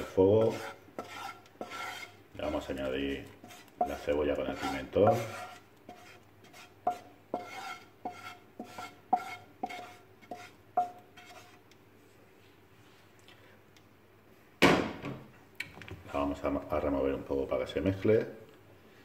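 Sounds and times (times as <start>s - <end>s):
metal spoon scraping a frying pan: 0.0s - 11.6s.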